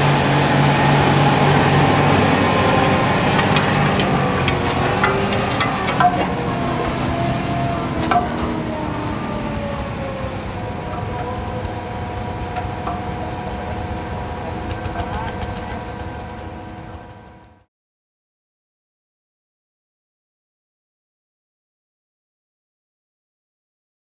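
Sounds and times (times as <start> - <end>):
tractor engine running: 0.0 - 17.6
metallic clanks: 2.6 - 9.2.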